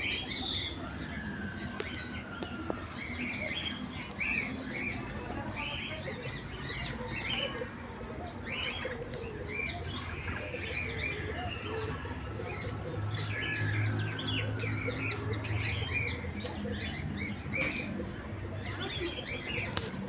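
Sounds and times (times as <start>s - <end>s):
birds chirping: 0.0s - 20.0s
low cooing call: 6.1s - 19.8s.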